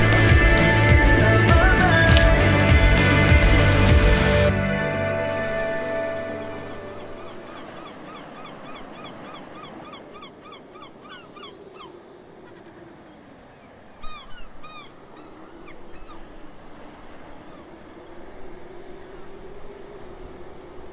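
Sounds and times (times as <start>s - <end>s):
birds calling: 0.0s - 4.5s, 5.2s - 20.9s
background music: 0.0s - 7.6s
steady outdoor hiss: 0.0s - 20.9s.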